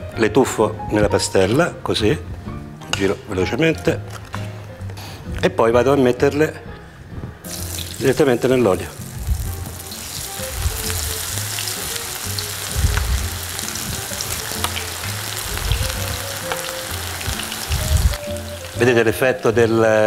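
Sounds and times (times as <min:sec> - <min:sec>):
vegetables deep-frying in oil: 0:07.5 - 0:19.2.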